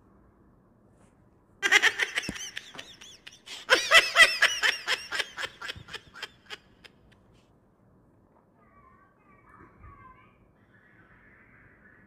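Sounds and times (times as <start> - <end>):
person giggling: 1.6 - 7.1.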